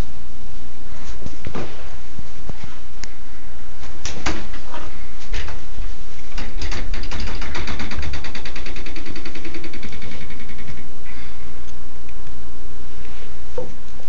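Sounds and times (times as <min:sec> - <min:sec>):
ticking rattle: 0:06.3 - 0:10.9
dog door flap knocking: 0:06.4 - 0:10.6.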